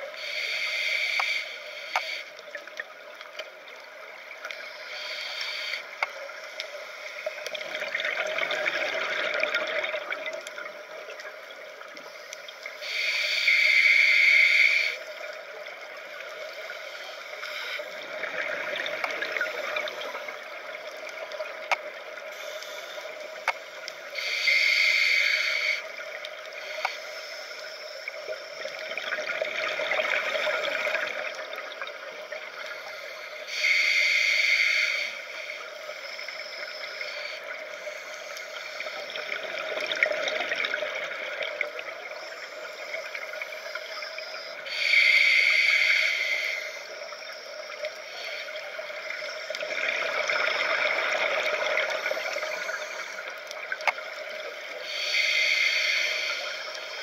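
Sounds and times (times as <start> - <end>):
faint steady hum: 0.0 - 57.0
hissing regulator inhales: 0.2 - 2.4, 4.6 - 7.3, 12.1 - 15.1, 22.3 - 28.6, 32.7 - 39.1, 42.2 - 47.0, 54.8 - 57.0.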